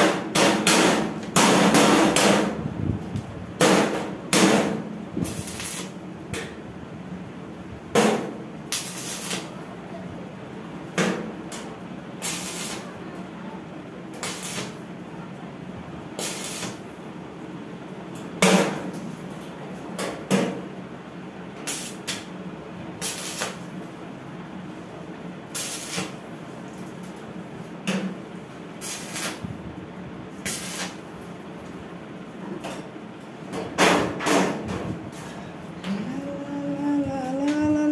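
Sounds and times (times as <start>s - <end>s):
welding arc crackling: 3.7s - 6.0s, 8.0s - 9.6s, 11.4s - 13.0s, 14.1s - 14.9s, 16.1s - 17.0s, 21.6s - 22.3s, 23.0s - 23.8s, 25.4s - 27.3s, 28.7s - 29.6s, 30.3s - 31.2s
welder low hum: 4.5s - 6.0s, 12.2s - 13.1s, 35.8s - 37.9s.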